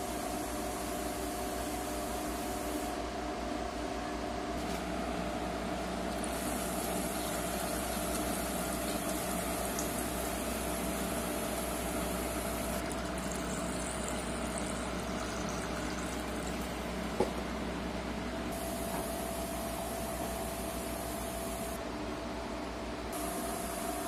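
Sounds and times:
steady mechanical hum: 0.0 - 24.0
liquid pouring from plastic jug: 12.8 - 17.3.

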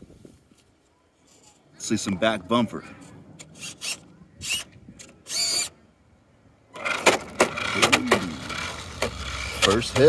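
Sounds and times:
servos whirring: 3.0 - 5.8, 6.7 - 10.0
toy car hopping on asphalt: 6.8 - 10.0.

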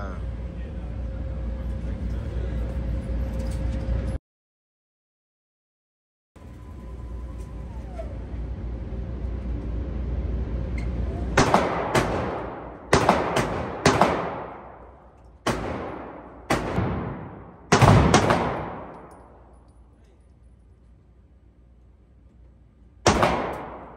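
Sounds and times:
steady low rush: 0.0 - 3.2, 6.4 - 23.9
pistol shots echoing: 11.4 - 19.5, 23.0 - 23.9.

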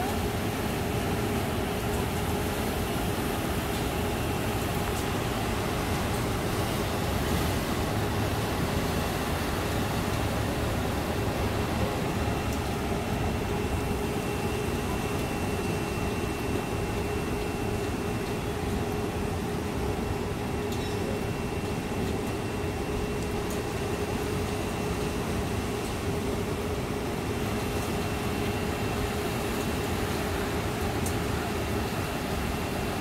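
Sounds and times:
floodwater running over street: 0.0 - 33.0.

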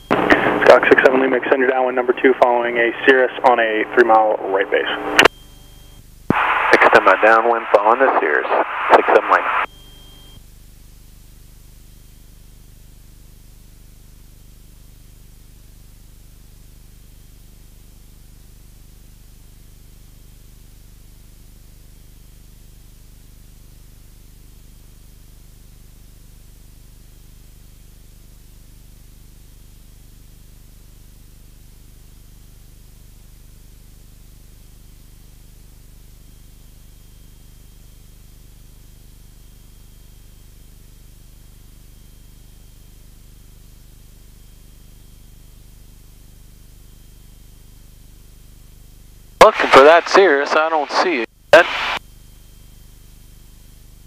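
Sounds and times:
intercom hiss: 0.1 - 5.3, 6.3 - 9.7, 49.4 - 52.0.

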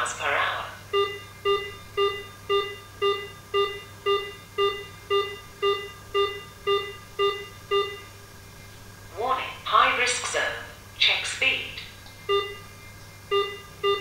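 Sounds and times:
short electronic beeps: 1.0 - 8.1, 12.3 - 12.6, 13.3 - 14.0.

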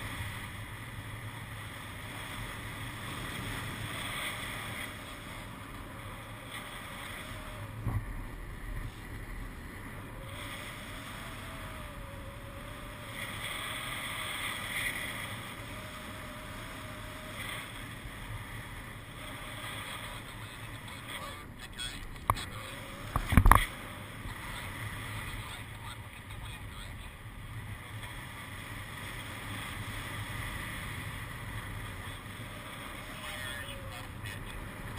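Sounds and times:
wind rushing over microphone: 21.7 - 25.5.

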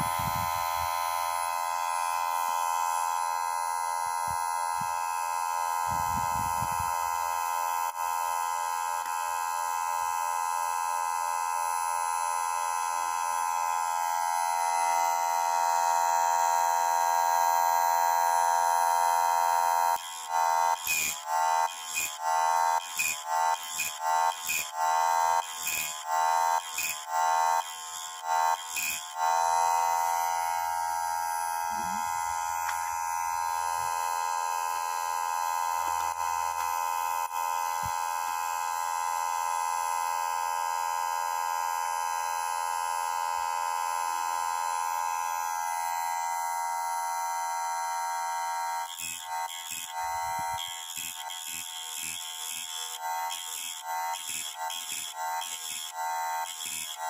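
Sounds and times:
chain saw sharpener grinding wheel whine: 0.0 - 57.0
grinding wheel grinding chain: 20.0 - 30.8, 48.8 - 57.0.

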